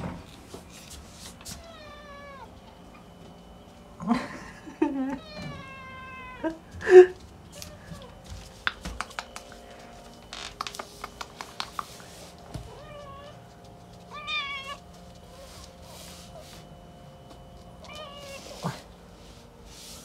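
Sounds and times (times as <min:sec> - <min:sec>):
cat meowing: 0:01.6 - 0:02.5, 0:05.2 - 0:06.5, 0:12.7 - 0:13.4, 0:14.1 - 0:14.8, 0:17.8 - 0:18.5.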